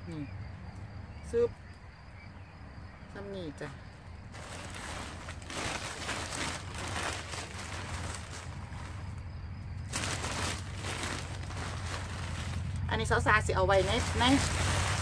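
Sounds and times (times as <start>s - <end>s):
plastic bag rustling: 4.3s - 9.2s, 9.8s - 13.1s, 13.7s - 15.0s.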